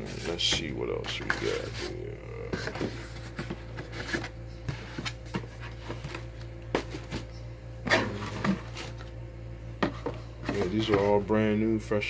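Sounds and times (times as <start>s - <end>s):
cardboard rubbing: 0.0s - 7.3s
cardboard boxes tapping and knocking: 2.5s - 7.3s.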